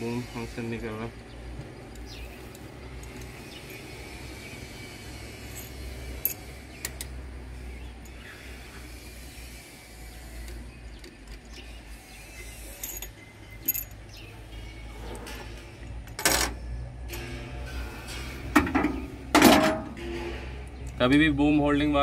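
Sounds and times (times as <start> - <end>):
metallic tool clinks: 12.8 - 14.0
metal clank: 15.2 - 20.8.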